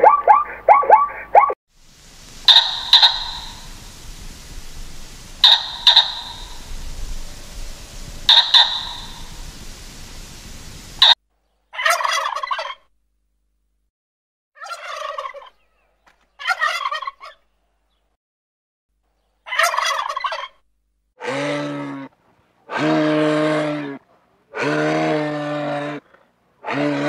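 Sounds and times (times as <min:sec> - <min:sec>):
turkeys gobbling: 0:00.0 - 0:01.6, 0:02.2 - 0:11.2, 0:11.8 - 0:12.8, 0:14.6 - 0:15.6, 0:16.4 - 0:17.4, 0:19.5 - 0:20.6
low moose calls: 0:02.0 - 0:11.2.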